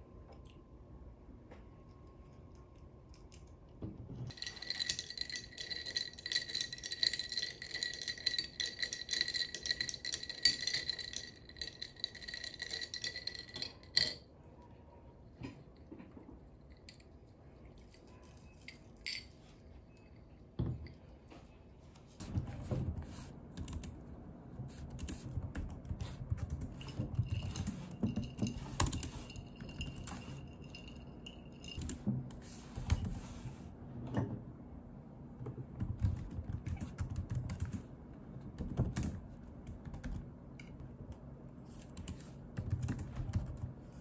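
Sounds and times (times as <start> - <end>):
ice clinking in glass: 4.3 - 14.2.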